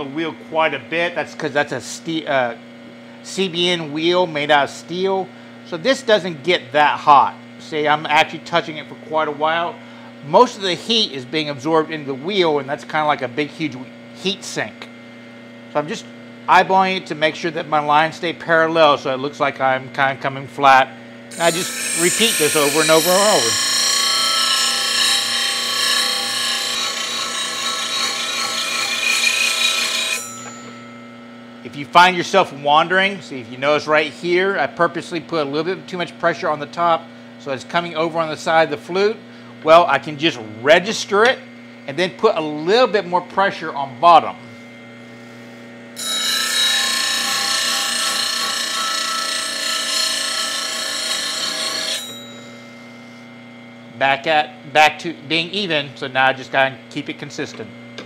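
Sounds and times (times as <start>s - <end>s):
grinder motor hum: 0.0s - 54.0s
grinder motor low hum: 18.8s - 33.3s
bench grinder grinding metal: 21.3s - 31.3s, 46.0s - 52.8s.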